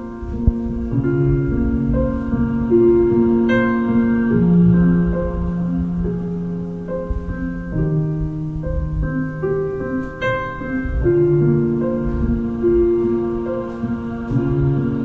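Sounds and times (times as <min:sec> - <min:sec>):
slow piano music: 0:00.0 - 0:15.0.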